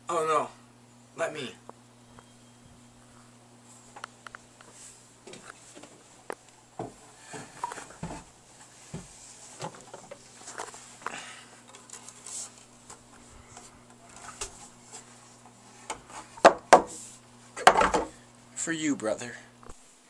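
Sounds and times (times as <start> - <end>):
rustling and handling noise: 2.2 - 18.2.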